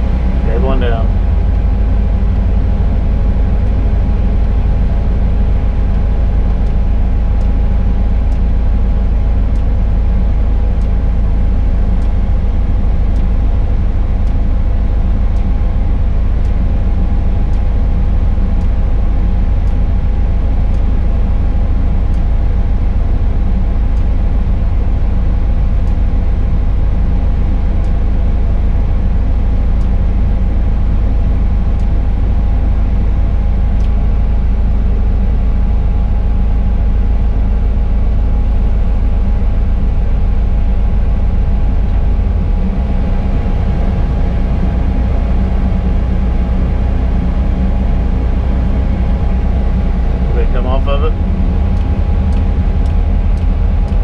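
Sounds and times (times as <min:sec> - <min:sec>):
crane engine and hydraulics rumbling: 0:00.0 - 0:54.0
steady hum: 0:00.0 - 0:54.0
faint ticks: 0:17.5 - 0:17.7.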